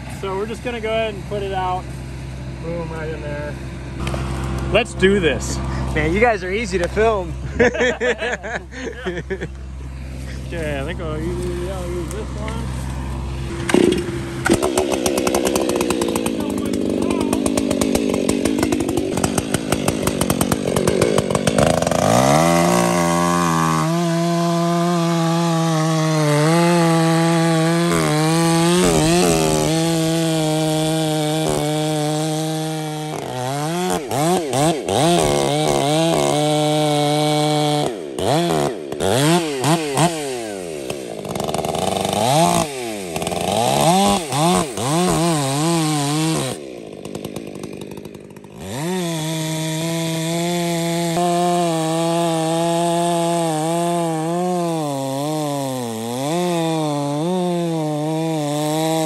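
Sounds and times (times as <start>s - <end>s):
chainsaw revving and cutting: 0.0s - 59.0s.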